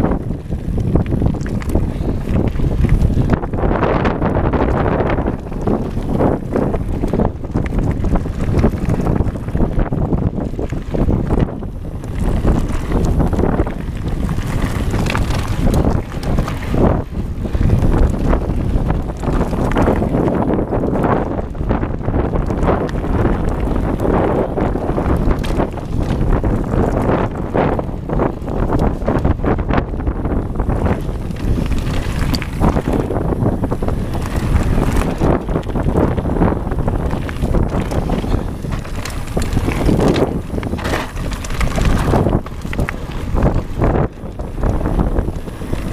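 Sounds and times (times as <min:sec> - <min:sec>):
bike tyres crunching on gravel: 0:00.0 - 0:45.9
wind buffeting microphone: 0:00.0 - 0:45.9.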